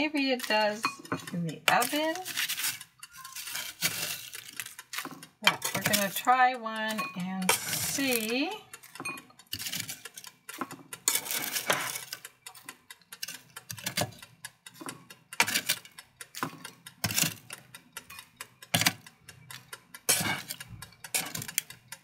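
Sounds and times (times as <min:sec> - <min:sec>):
tongs clicking on metal basket: 0:00.0 - 0:22.0.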